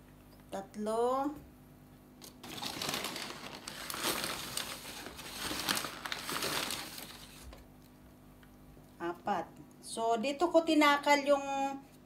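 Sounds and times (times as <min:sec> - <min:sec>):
paper sack crinkling: 0:02.2 - 0:07.6.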